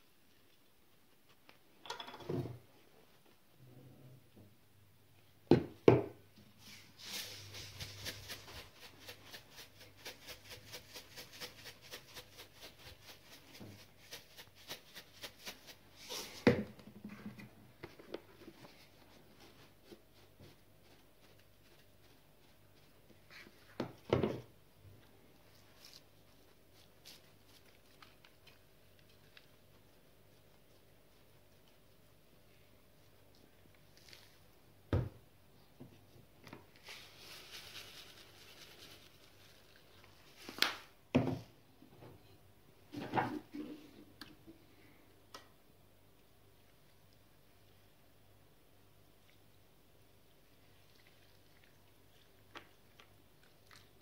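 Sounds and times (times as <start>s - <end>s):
spice shaker rattling: 7.0s - 15.8s.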